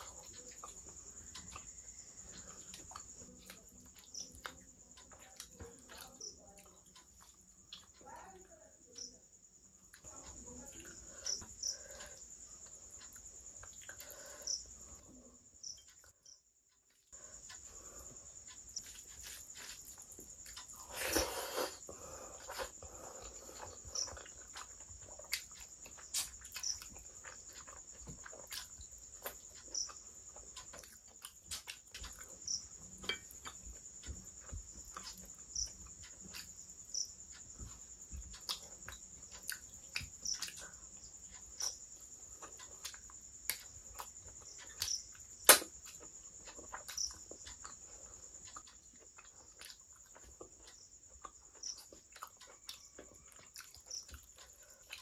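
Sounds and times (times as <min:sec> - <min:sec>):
chewing and mouth smacks: 0:22.4 - 0:32.5, 0:42.4 - 0:55.0.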